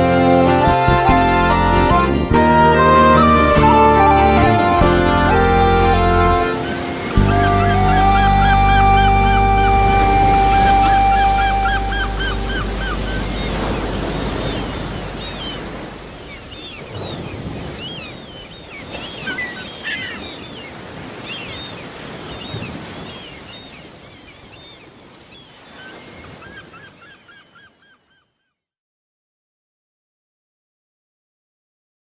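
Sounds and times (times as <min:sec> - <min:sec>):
surf: 0:00.0 - 0:27.4
wind: 0:00.0 - 0:28.5
short bird calls: 0:10.4 - 0:28.6.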